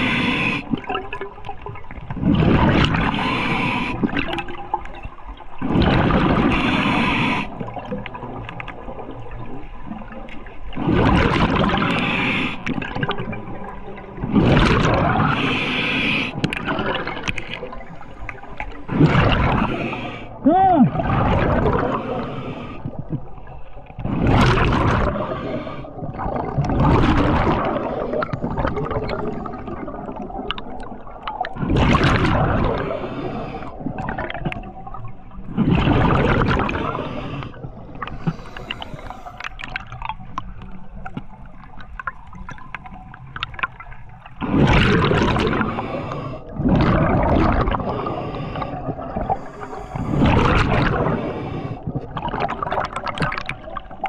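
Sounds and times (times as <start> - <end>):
exhaled bubbles gurgling underwater: 0.0 - 54.0.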